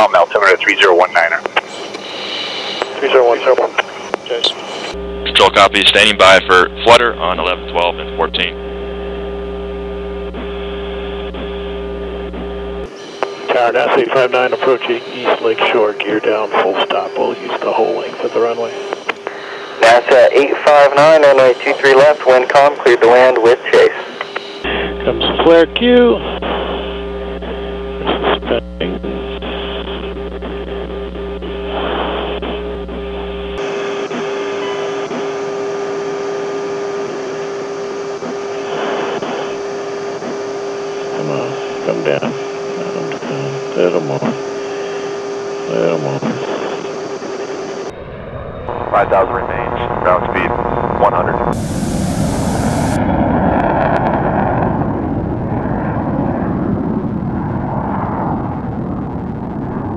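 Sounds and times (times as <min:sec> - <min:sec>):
radio channel hum and hiss: 0:00.0 - 0:47.9, 0:48.7 - 0:53.0
constant mid-pitched tone: 0:00.0 - 0:53.0
jet engine rush: 0:00.2 - 0:08.5, 0:38.1 - 0:59.9
high hiss: 0:51.6 - 0:53.0.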